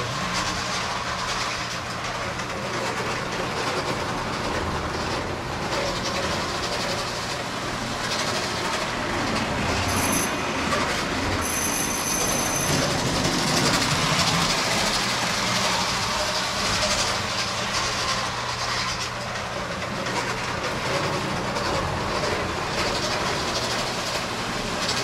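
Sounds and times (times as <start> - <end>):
model train wheels rumbling on rail: 0.0 - 25.0
wheel squeal: 9.8 - 13.8.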